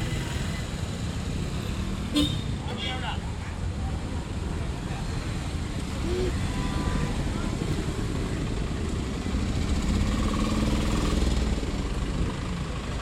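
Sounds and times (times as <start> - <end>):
vehicle engines idling: 0.0 - 13.0.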